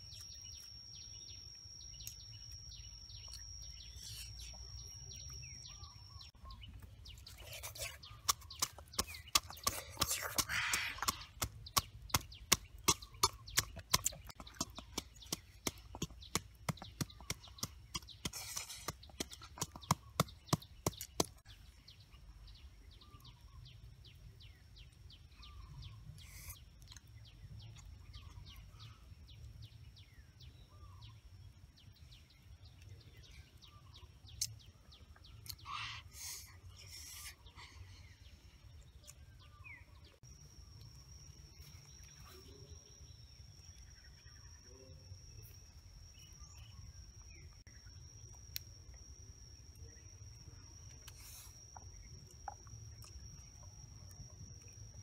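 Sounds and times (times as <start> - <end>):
birds chirping: 0.0 - 55.0
pestle pounding in a mortar: 8.2 - 21.4.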